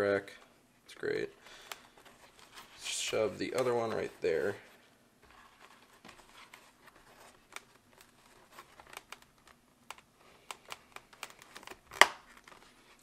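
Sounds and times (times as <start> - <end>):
plastic clicks and fabric rustling: 7.4 - 12.7
helmet liner snapping in: 10.5 - 12.3.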